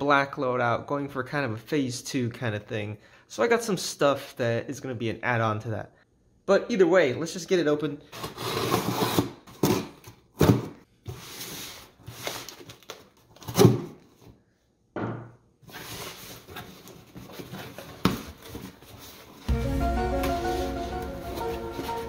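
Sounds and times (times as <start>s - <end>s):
tape ripping and cardboard rustling: 8.2s - 14.2s.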